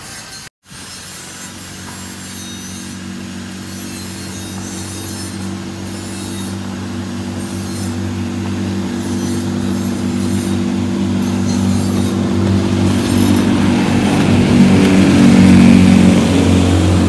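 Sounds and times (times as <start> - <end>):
speedboat engine droning: 0.9 - 17.0.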